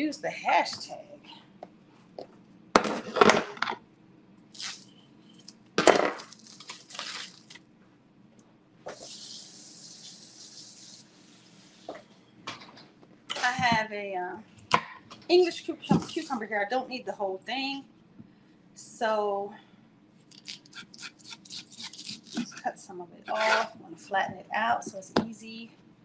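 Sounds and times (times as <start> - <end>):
plastic bag crinkling: 6.1 - 7.6.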